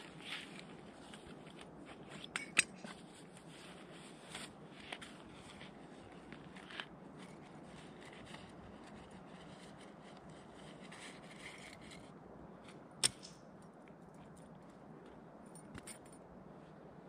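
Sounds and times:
rustling and scraping: 0:00.0 - 0:13.3
steady low hiss: 0:00.0 - 0:17.0
sharp click: 0:13.0 - 0:13.4.

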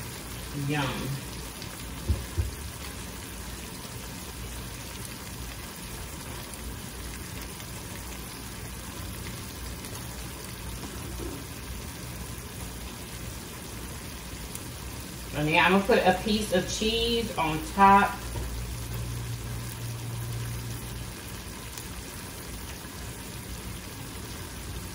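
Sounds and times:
meat sizzling in a skillet: 0:00.0 - 0:24.9.

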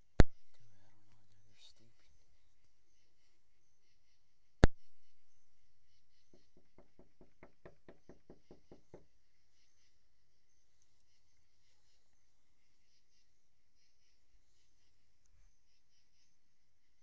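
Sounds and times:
faint evenly spaced knocks: 0:05.9 - 0:09.7.

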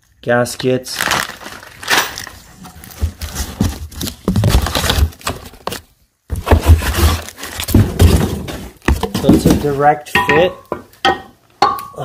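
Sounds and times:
cardboard box knocks and scrapes: 0:03.0 - 0:05.1, 0:06.3 - 0:09.7.

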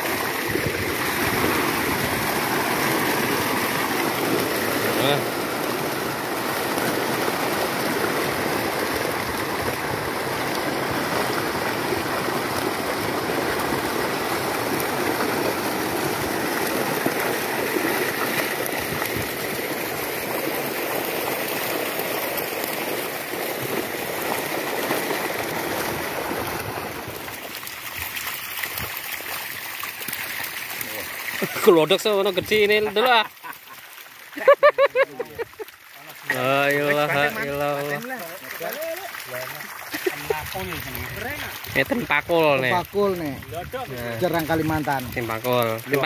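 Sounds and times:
water churning and splashing: 0:00.0 - 0:46.0.

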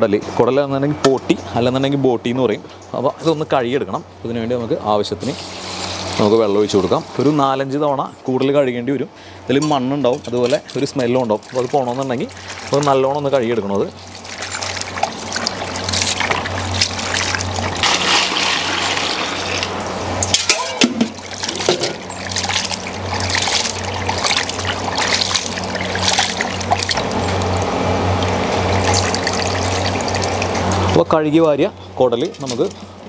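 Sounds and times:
water splashing and sloshing: 0:09.5 - 0:33.0.

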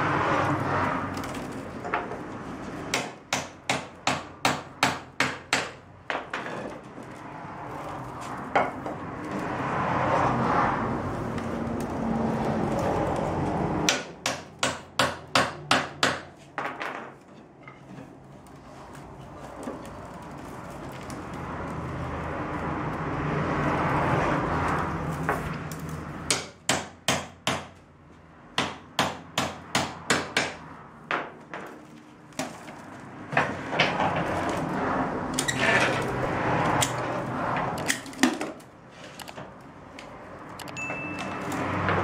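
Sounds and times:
willow rods rustling and scraping: 0:00.2 - 0:02.8, 0:06.4 - 0:13.8, 0:17.2 - 0:26.2, 0:31.7 - 0:40.6.

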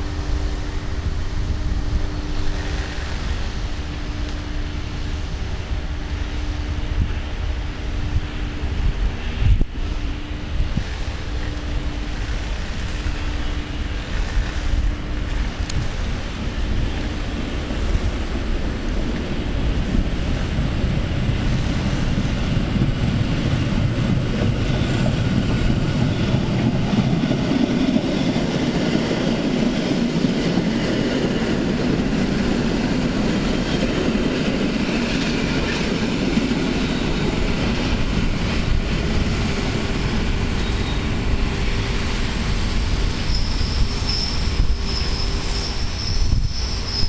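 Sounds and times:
train rumbling on track: 0:00.0 - 0:47.0
high-pitched wheel squeal: 0:40.5 - 0:41.2, 0:43.0 - 0:47.0.

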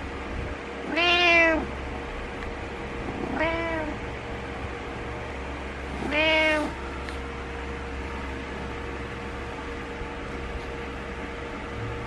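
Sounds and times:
cat meowing: 0:00.8 - 0:01.7, 0:03.2 - 0:04.0, 0:05.9 - 0:06.8.

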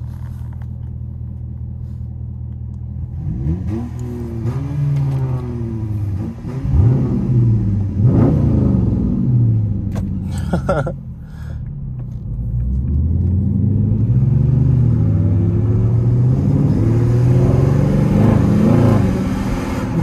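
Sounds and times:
car engine revving in cabin: 0:00.0 - 0:10.9, 0:11.7 - 0:20.0.

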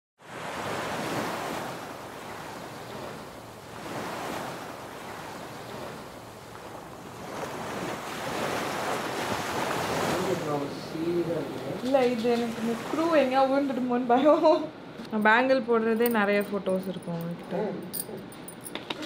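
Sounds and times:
sea waves breaking: 0:00.2 - 0:14.6.

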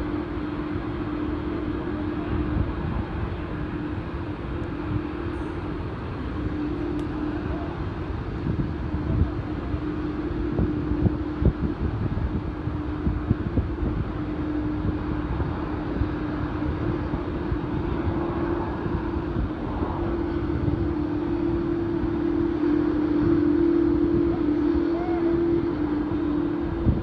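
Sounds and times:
jet engines droning: 0:00.0 - 0:27.0
wind buffeting microphone: 0:00.0 - 0:27.0.

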